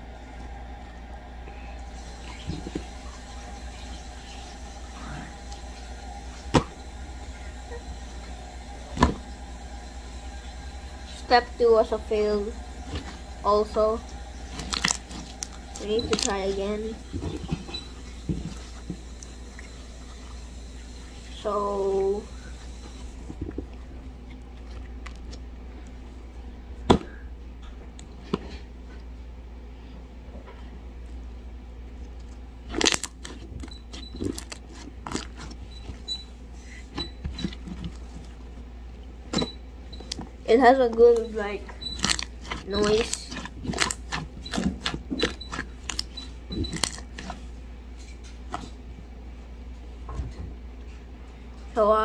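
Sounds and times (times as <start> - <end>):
slime popping: 14.5 - 16.6, 32.7 - 33.5, 42.0 - 47.4.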